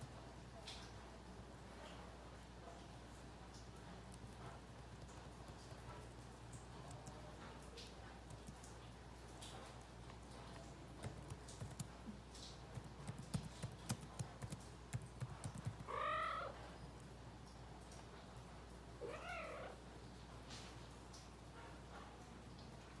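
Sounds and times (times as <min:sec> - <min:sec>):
cat meowing: 0:15.8 - 0:16.6, 0:19.0 - 0:19.8.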